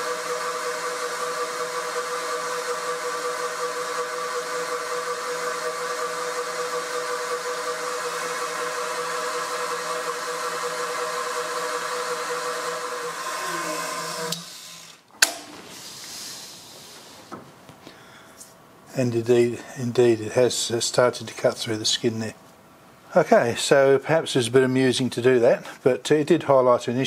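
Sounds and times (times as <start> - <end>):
milling machine whirring: 0.0 - 17.1.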